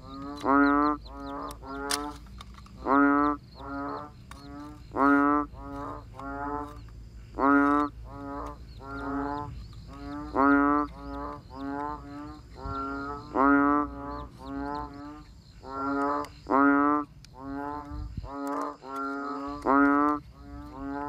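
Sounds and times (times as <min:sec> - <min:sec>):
frogs croaking: 0:00.0 - 0:21.0.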